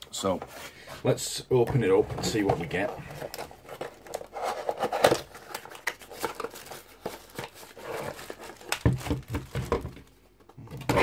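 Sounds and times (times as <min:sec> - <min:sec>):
plastic bag crinkling: 0:05.3 - 0:10.0.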